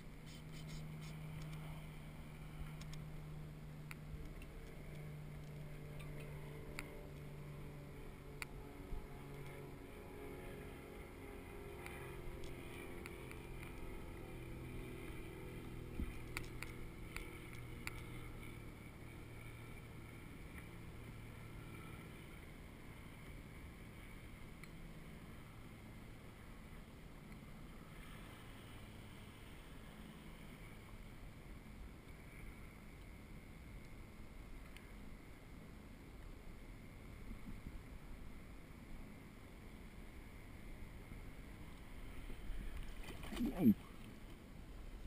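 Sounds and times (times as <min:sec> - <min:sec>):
boat engine droning: 0:00.0 - 0:45.0.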